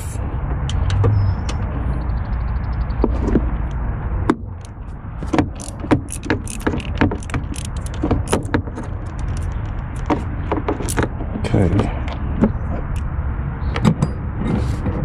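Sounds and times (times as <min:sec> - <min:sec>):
low rumble: 0:00.0 - 0:05.8
hand tool clicking on metal: 0:05.5 - 0:10.1.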